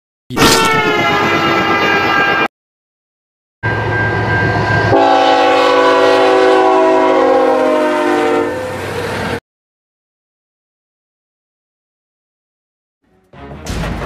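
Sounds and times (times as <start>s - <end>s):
train air horn blasts: 0.3s - 2.5s, 4.9s - 8.8s.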